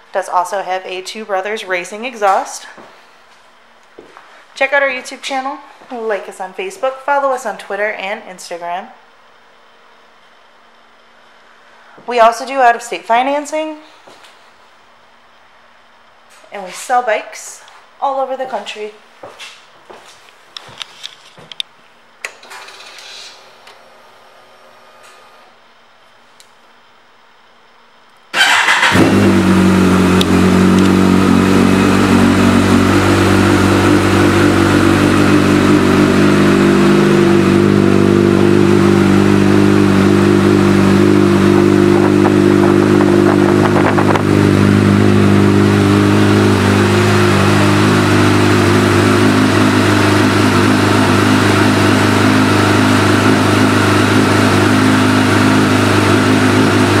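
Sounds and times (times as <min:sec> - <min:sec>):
motorcycle engine starting and idling: 0:28.3 - 0:57.0.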